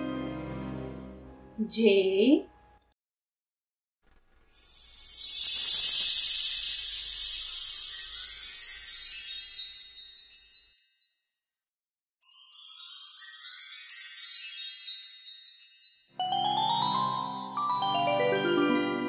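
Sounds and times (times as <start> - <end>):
tinkling sparkle chimes: 4.6 - 11.5, 12.2 - 19.0.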